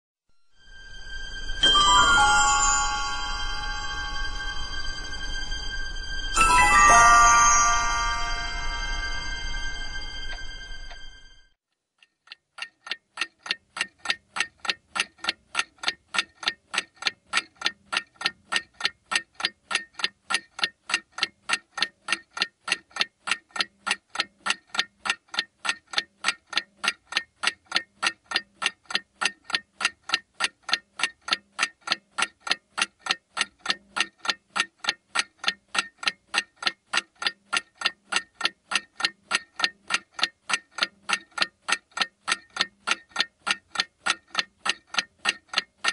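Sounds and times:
clock ticking: 12.0 - 45.9.

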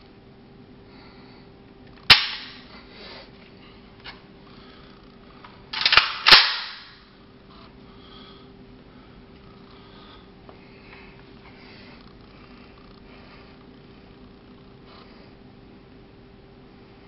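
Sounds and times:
rifle clacking: 2.1 - 2.6, 5.8 - 7.0.

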